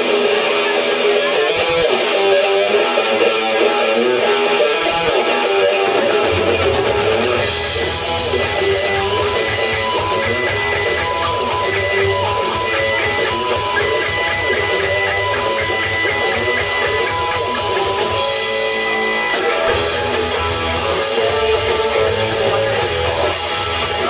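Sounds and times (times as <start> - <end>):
bass guitar: 0.0 - 24.0
electric guitars: 0.0 - 24.0
steady drum beat: 5.3 - 24.0.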